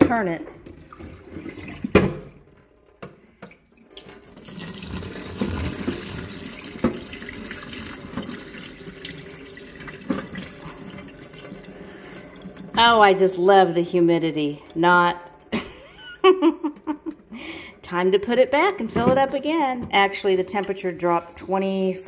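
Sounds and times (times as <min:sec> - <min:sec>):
water pouring into steel sink: 0:00.8 - 0:15.6.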